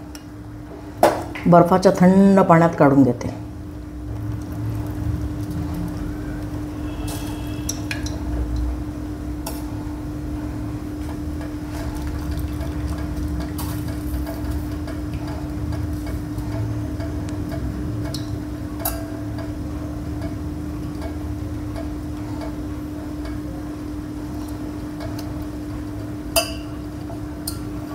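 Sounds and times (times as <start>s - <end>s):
steady low hum: 0.0s - 27.9s
water dripping: 4.1s - 8.7s, 11.3s - 23.5s
tongs clinking against pots: 26.3s - 26.8s, 27.4s - 27.7s.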